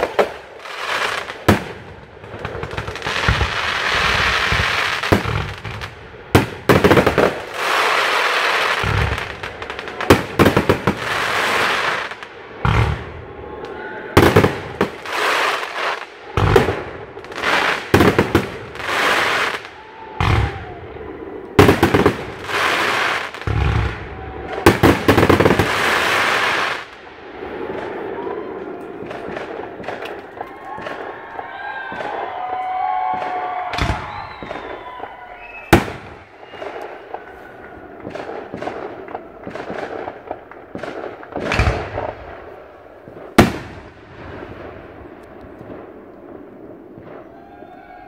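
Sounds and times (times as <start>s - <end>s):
fireworks crackling hiss: 0.0s - 13.0s, 14.2s - 20.6s, 21.6s - 24.0s, 24.6s - 28.1s
fireworks bangs: 0.0s - 48.0s.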